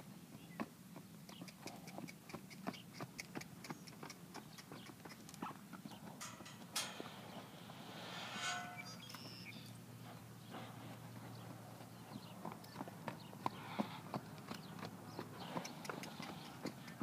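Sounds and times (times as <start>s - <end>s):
hoofbeats on dirt: 0.3s - 6.7s, 10.0s - 17.0s
short rushing noise: 6.6s - 9.6s.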